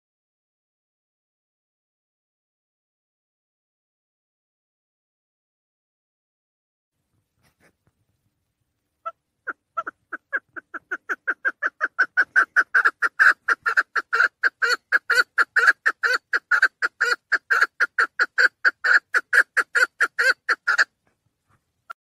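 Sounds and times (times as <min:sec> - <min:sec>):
partridge calling: 0:09.0 - 0:20.9.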